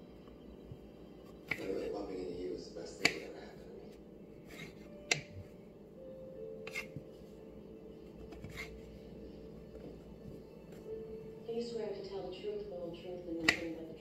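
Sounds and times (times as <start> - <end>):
knife tapping on cutting board: 13.4 - 13.7.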